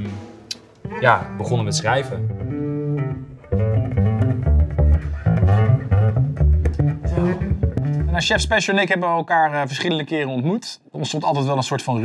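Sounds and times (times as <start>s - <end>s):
music with heavy bass line: 2.5s - 8.6s.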